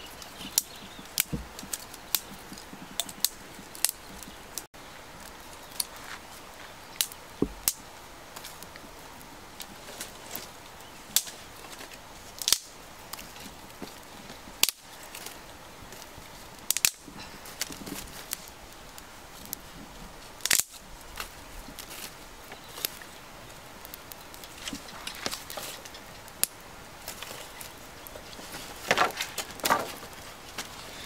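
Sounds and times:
twig fire crackling: 0.0s - 31.0s
loud sharp pops from fire: 11.1s - 11.8s, 12.4s - 15.4s, 16.6s - 18.6s, 20.4s - 22.0s, 28.7s - 30.7s.

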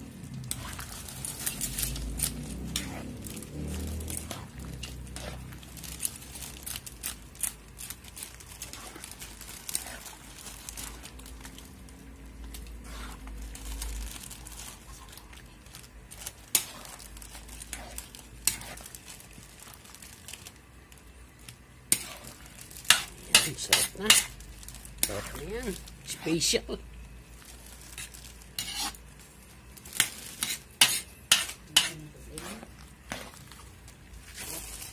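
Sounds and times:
sizzling: 0.0s - 34.9s
spatula scraping metal wok: 0.5s - 11.2s, 12.5s - 13.8s, 16.5s - 18.9s, 21.9s - 24.3s, 27.9s - 29.0s, 30.0s - 33.5s.

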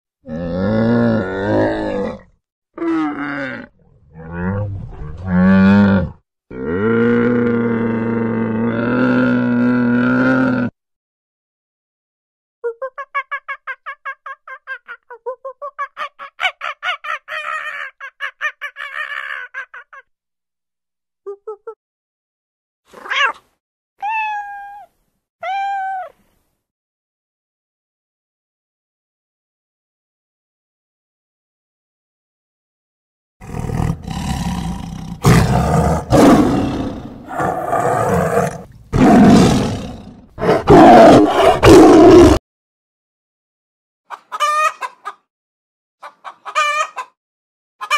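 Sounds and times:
tiger roaring: 0.2s - 10.7s, 33.4s - 42.4s.

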